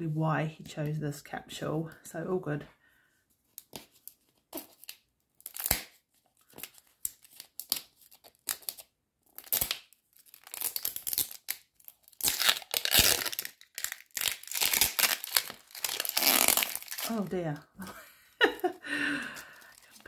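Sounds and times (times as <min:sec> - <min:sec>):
plastic wrapper crinkling and tearing: 0:03.5 - 0:17.7, 0:19.4 - 0:20.0.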